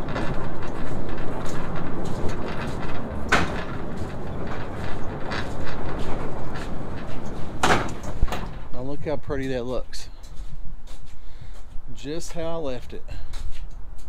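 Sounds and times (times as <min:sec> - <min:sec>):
sharp knocks: 0:00.0 - 0:08.8
truck rumbling: 0:00.0 - 0:14.0.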